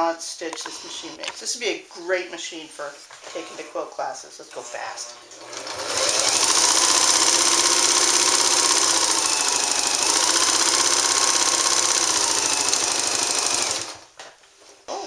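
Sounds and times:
sewing machine clattering: 0:05.4 - 0:14.0.

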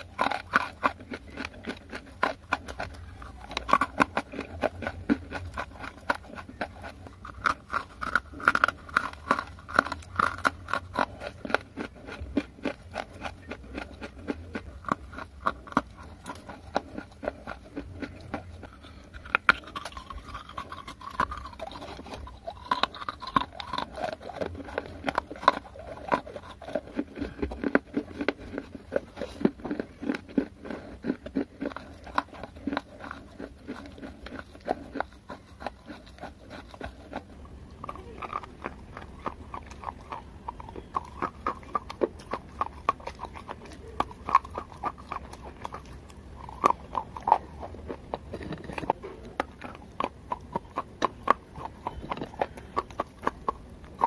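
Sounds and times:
crisp crunching while chewing: 0:00.0 - 0:54.0.

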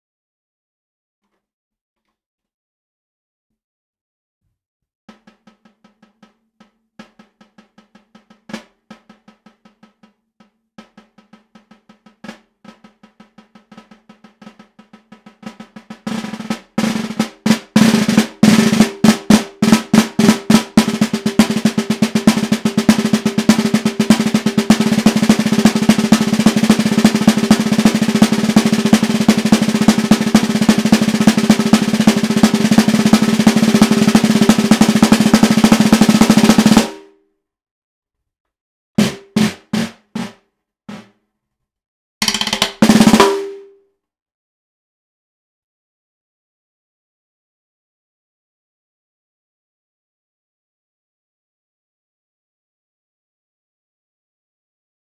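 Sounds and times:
snare drum played with sticks: 0:05.1 - 0:37.2, 0:39.0 - 0:41.2, 0:42.2 - 0:43.8.

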